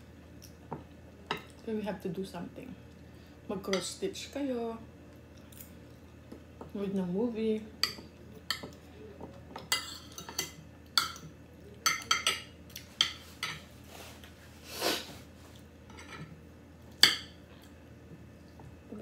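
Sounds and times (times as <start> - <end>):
cutlery clinking on a plate: 9.6 - 13.7, 15.9 - 16.3.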